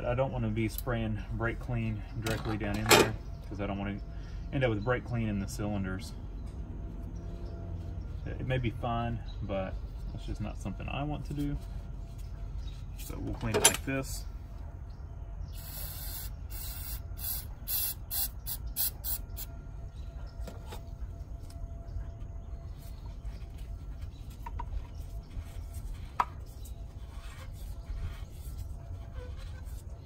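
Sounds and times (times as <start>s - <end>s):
aerosol can spraying: 15.6s - 18.9s.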